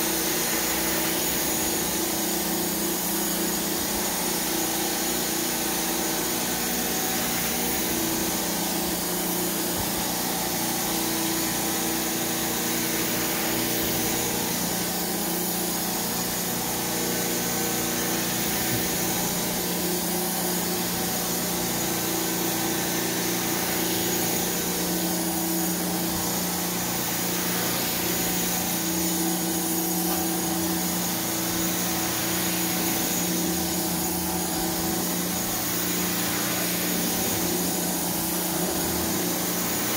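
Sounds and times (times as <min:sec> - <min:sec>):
carpet extractor suction hiss: 0:00.0 - 0:39.9.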